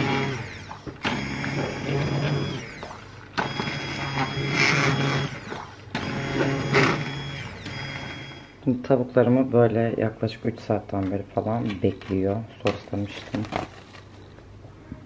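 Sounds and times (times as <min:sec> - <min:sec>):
hand blender motor humming: 0:00.0 - 0:08.4.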